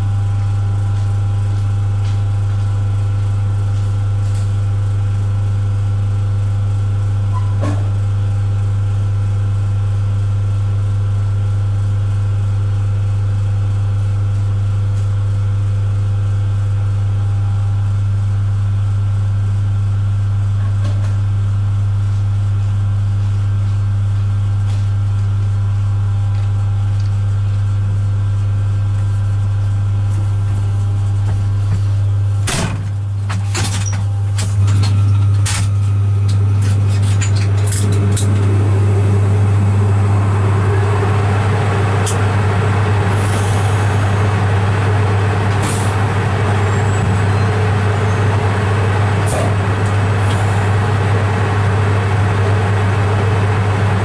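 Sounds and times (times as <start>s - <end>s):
train cab low drone: 0.0s - 54.0s.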